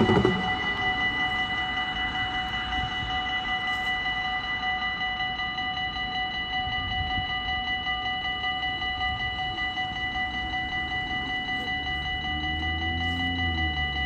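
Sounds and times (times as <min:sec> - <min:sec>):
level crossing warning bells: 0:00.0 - 0:14.0.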